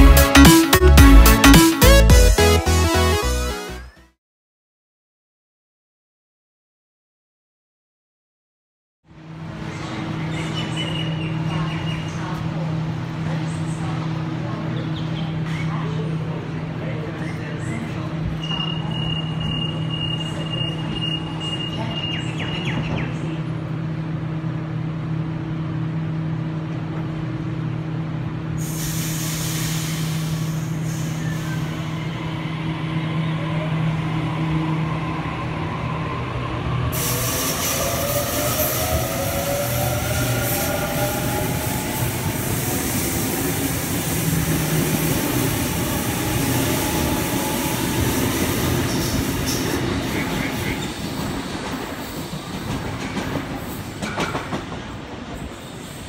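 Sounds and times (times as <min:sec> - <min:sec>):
train humming: 0:09.2 - 0:56.0
door-closing warning beeps: 0:18.4 - 0:21.7
hiss: 0:28.6 - 0:31.8, 0:41.4 - 0:50.2.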